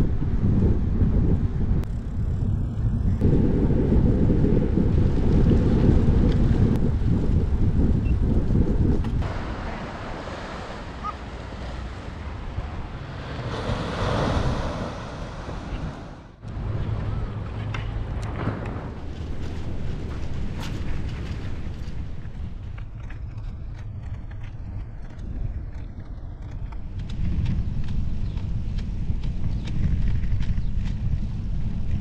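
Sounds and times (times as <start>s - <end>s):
wind buffeting microphone: 0.0s - 32.0s
surf breaking on shore: 9.2s - 22.5s.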